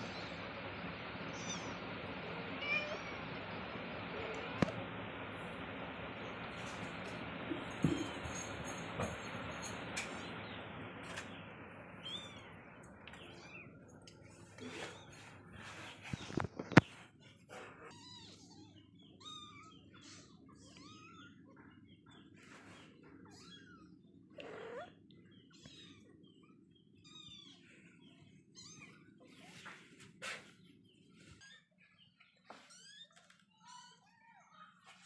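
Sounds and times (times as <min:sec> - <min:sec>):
low steady hum: 0:00.0 - 0:30.0
kittens mewing: 0:23.1 - 0:27.6.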